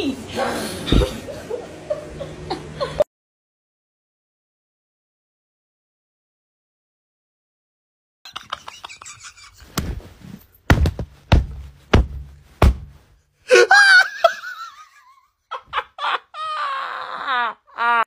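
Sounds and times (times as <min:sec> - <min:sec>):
heavy thuds: 0:09.7 - 0:13.2
high-pitched voice shrieking laughter: 0:15.6 - 0:18.0.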